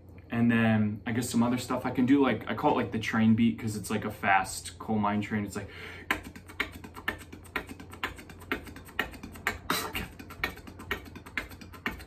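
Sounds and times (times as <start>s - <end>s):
beatboxed mouth clicks and hissing: 5.8s - 12.0s.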